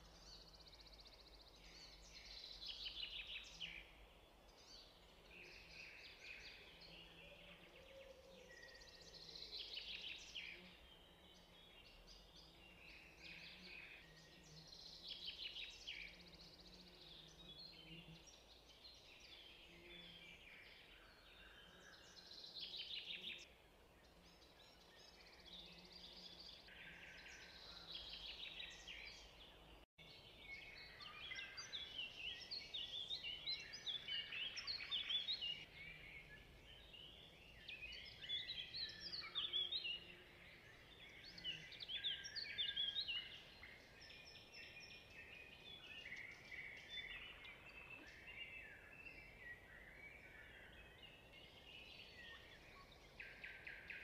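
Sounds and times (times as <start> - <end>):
songbird singing trilled phrases: 30.3 - 54.0.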